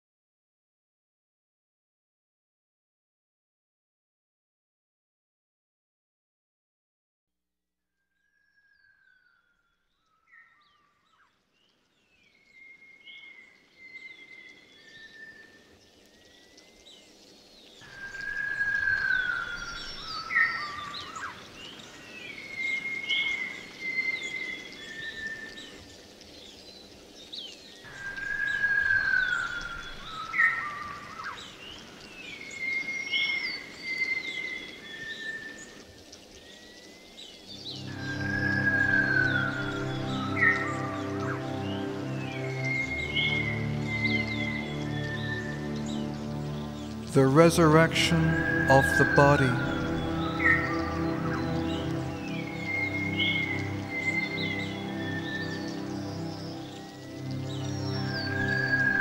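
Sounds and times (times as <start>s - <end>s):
birdsong with whistled calls: 8.2s - 59.0s
rushing outdoor background: 37.6s - 59.0s.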